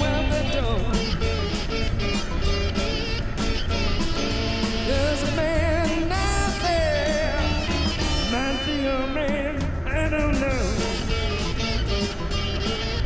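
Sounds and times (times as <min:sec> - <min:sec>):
person singing: 0:00.0 - 0:01.2, 0:04.9 - 0:11.2
rock music: 0:00.0 - 0:13.0.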